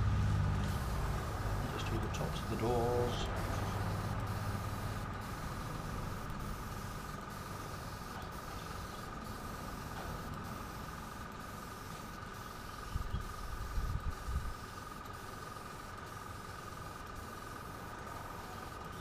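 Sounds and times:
airbrush spraying air hiss: 0:00.2 - 0:15.6.

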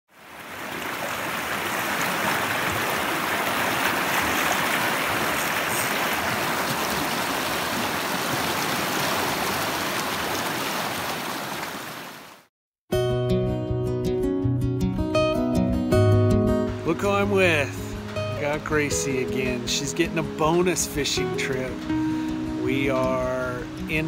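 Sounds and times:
stream rushing over rocks: 0:00.1 - 0:12.5.

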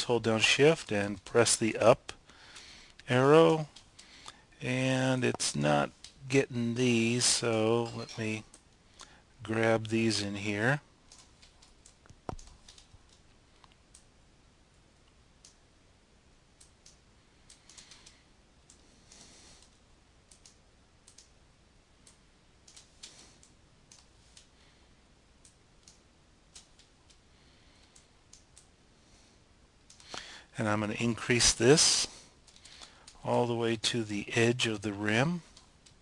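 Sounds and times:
computer mouse and keyboard clicks: 0:11.1 - 0:14.1, 0:16.6 - 0:21.4, 0:22.0 - 0:24.5, 0:25.4 - 0:27.2, 0:29.8 - 0:30.2.

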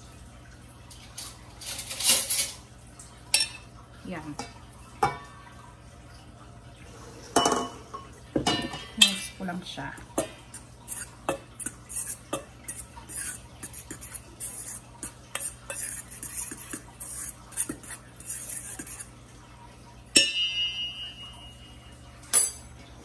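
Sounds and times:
utensil scraping metal bowl: 0:10.2 - 0:19.1
steel bowl ringing: 0:20.1 - 0:22.8.

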